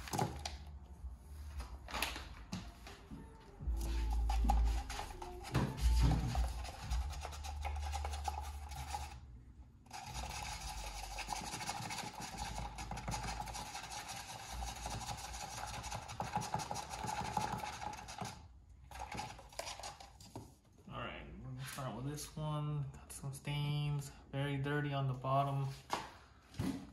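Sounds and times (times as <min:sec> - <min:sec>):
utensil scraping inside paper cup: 0:03.7 - 0:09.2, 0:09.9 - 0:20.4.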